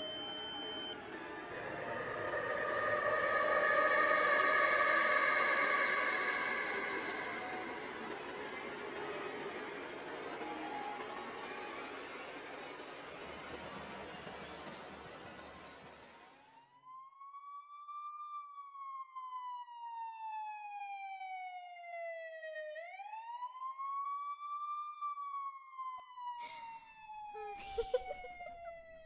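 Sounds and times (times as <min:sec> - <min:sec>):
siren wailing: 0:00.0 - 0:08.8, 0:17.3 - 0:29.0.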